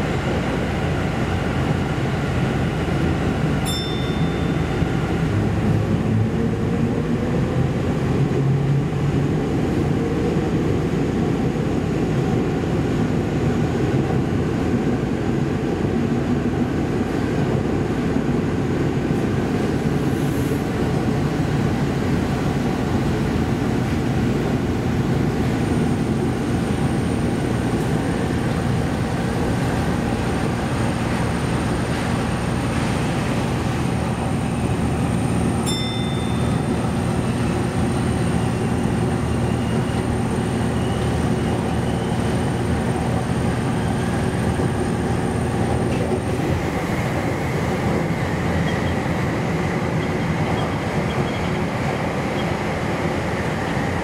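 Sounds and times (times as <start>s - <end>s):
train rumbling in tunnel: 0.0s - 54.0s.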